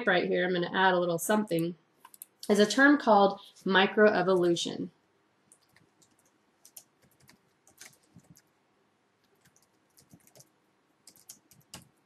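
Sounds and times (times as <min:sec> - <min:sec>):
faint keyboard typing: 0:01.5 - 0:02.7, 0:05.5 - 0:08.6, 0:09.2 - 0:12.0.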